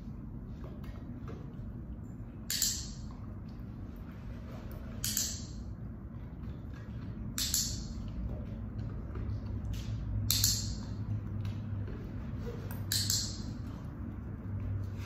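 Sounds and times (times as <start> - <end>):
steady low hum: 0.0 - 15.0
training clicker clicking: 5.0 - 5.6, 7.4 - 8.2, 10.3 - 11.0, 12.9 - 13.6.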